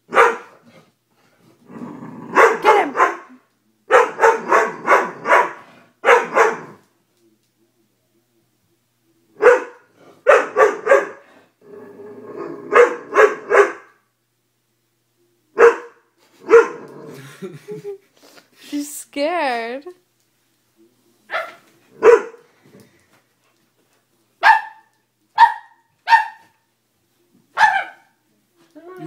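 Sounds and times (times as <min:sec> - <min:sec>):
dog barking: 0:00.1 - 0:00.6, 0:02.3 - 0:06.8, 0:09.4 - 0:11.2, 0:12.7 - 0:14.0, 0:15.6 - 0:16.8, 0:21.3 - 0:22.4, 0:24.4 - 0:26.6, 0:27.6 - 0:28.2
dog growling: 0:00.7 - 0:02.7, 0:04.4 - 0:05.9, 0:11.2 - 0:13.2, 0:16.7 - 0:17.4.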